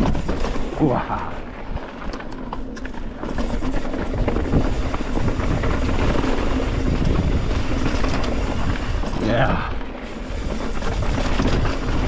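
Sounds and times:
bike clattering over rock: 0:00.0 - 0:12.0
wind buffeting microphone: 0:03.4 - 0:12.0.

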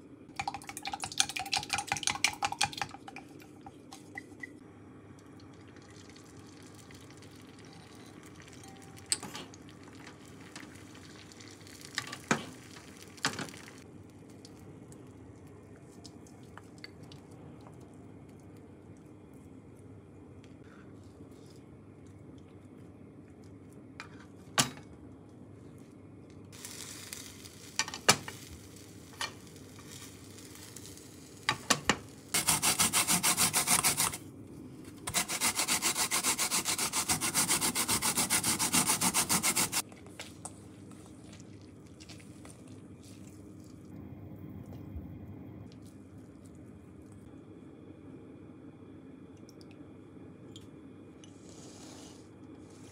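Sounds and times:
fast rubbing or scraping strokes: 0:32.4 - 0:34.2, 0:35.1 - 0:39.8.

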